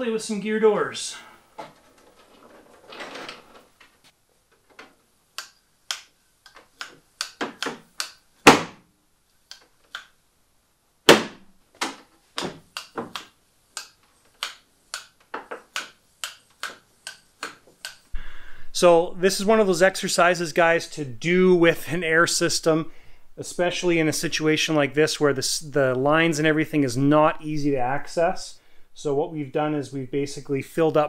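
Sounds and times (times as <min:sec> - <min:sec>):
air cylinders snapping: 0:05.4 - 0:08.6, 0:11.1 - 0:18.1.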